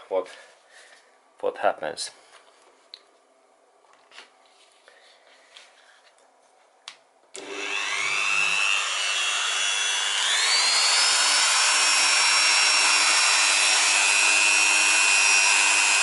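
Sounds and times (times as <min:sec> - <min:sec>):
rotary tool motor whine: 0:07.4 - 0:16.0.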